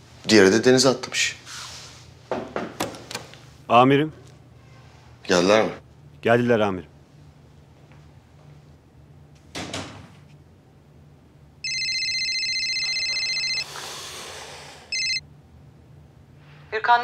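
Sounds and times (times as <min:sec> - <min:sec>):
phone ringtone: 0:11.6 - 0:13.7, 0:14.9 - 0:15.2.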